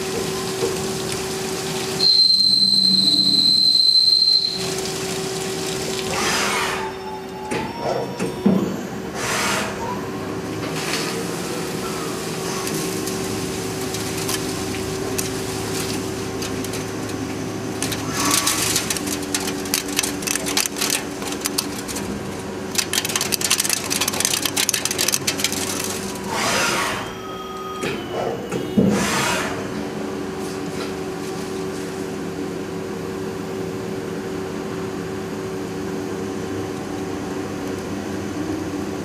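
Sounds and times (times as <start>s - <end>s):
rapid crackle of clicks: 12.6s - 26.4s.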